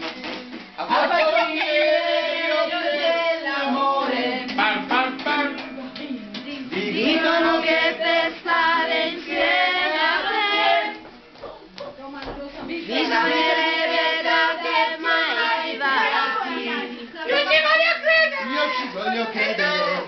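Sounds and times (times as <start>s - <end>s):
man singing: 4.6s - 7.3s.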